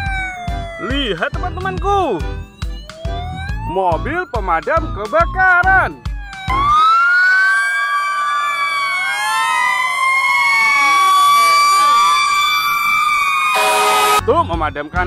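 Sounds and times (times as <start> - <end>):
fire engine sirens wailing: 0.0 - 15.0.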